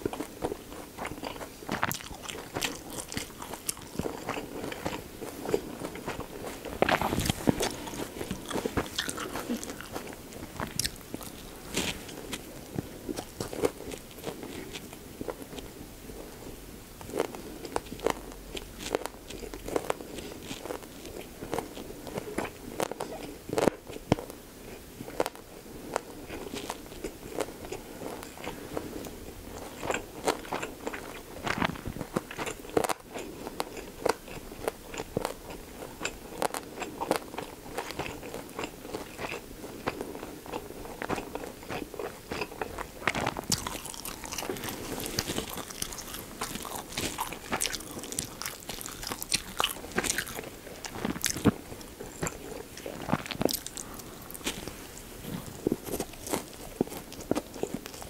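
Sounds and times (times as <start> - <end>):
close chewing with wet crunches: 0.0 - 58.0.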